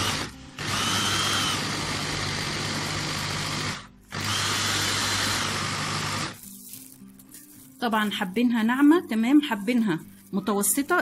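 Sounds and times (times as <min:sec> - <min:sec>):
food processor motor running: 0:00.0 - 0:06.4.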